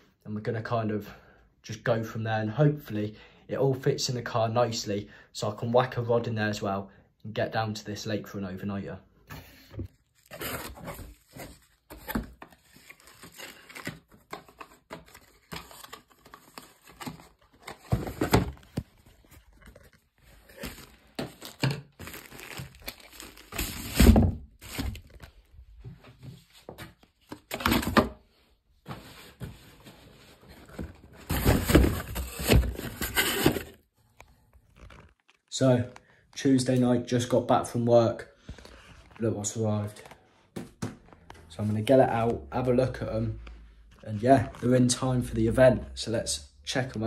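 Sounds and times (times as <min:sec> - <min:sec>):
plastic and cardboard crinkling: 0:09.9 - 0:28.1, 0:28.9 - 0:35.5.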